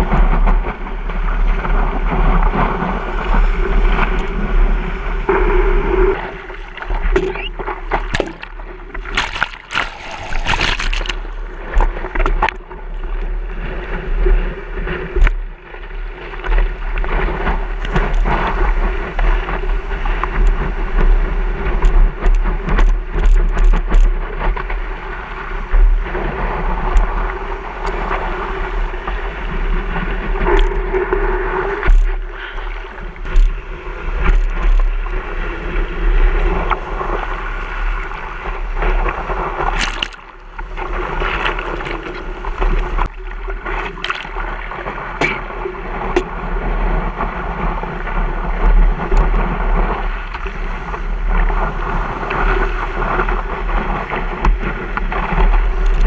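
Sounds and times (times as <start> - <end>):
wind buffeting camera: 0.0 - 56.0
whitewater rushing and splashing: 6.1 - 12.8, 36.4 - 55.6.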